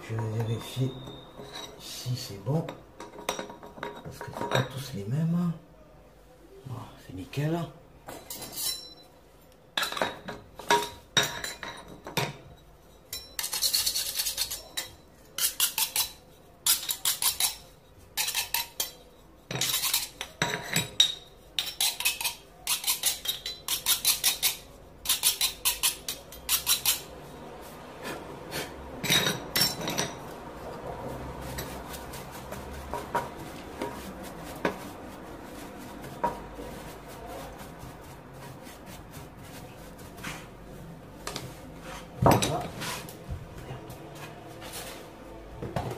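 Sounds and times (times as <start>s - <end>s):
metal scraper chipping mortar: 15.4s - 19.0s, 21.6s - 27.1s
brushing dust: 24.1s - 45.5s.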